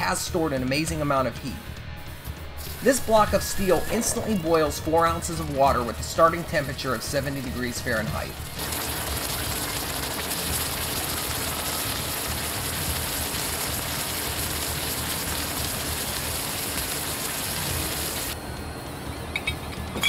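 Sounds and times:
water boiling violently: 2.6s - 18.4s.

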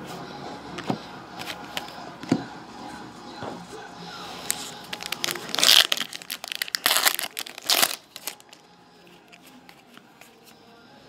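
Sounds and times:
cards being flipped: 0.8s - 2.4s, 4.4s - 8.6s, 9.2s - 10.6s
foil wrapper crinkling and tearing: 4.5s - 8.6s.

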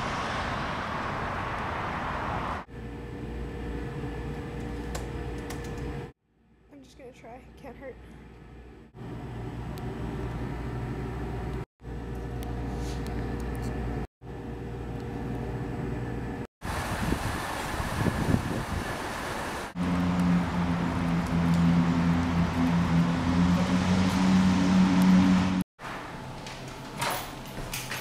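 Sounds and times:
street traffic noise: 0.0s - 6.1s, 16.6s - 25.6s
loud low drone: 19.8s - 25.6s.

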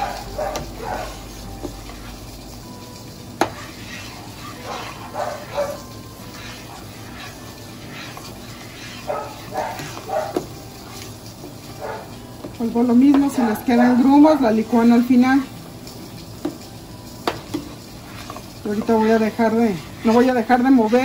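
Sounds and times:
dog barking: 0.0s - 1.2s, 4.6s - 5.9s, 9.0s - 10.4s, 11.8s - 12.1s
spoon stirring thick sauce: 0.0s - 21.0s.

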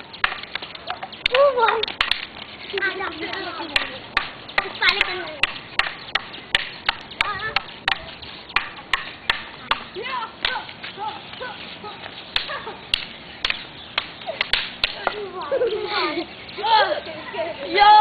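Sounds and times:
wooden sticks clacking: 0.0s - 15.5s
children calling out: 15.0s - 18.0s.

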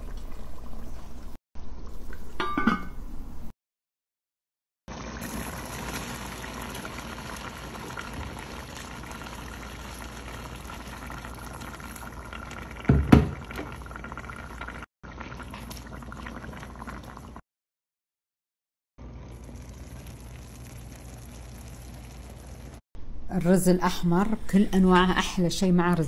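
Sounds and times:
stew bubbling in pot: 4.9s - 17.4s, 19.0s - 22.8s
water pouring from kettle: 4.9s - 17.4s.

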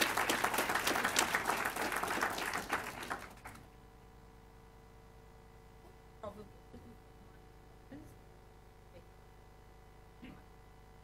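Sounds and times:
audience applauding: 0.0s - 3.7s.

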